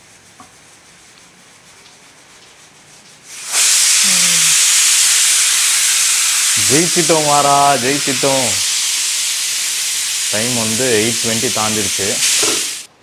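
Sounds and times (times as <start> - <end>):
pressure cooker venting steam: 3.3 - 12.9.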